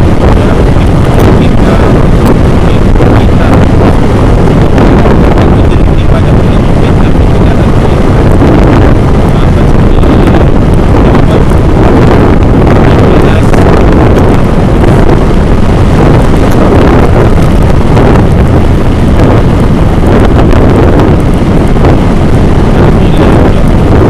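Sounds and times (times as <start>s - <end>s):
moving vehicle noise: 0.0s - 24.0s
wind buffeting microphone: 0.0s - 24.0s.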